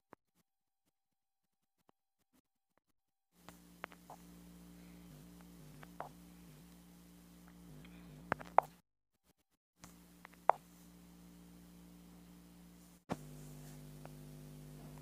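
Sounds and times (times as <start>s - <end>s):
faint electrical hum: 3.4s - 8.8s, 9.8s - 15.0s
fingertips tapping touchscreen: 5.3s - 6.6s.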